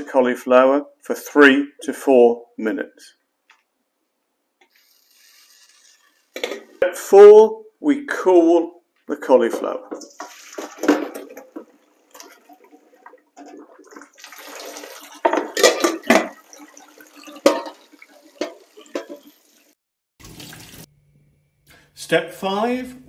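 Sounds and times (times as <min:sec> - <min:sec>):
pan and colander knocking: 0:09.5 - 0:11.7, 0:15.2 - 0:16.4, 0:17.4 - 0:19.3
water splashing into metal sink: 0:09.9 - 0:20.9.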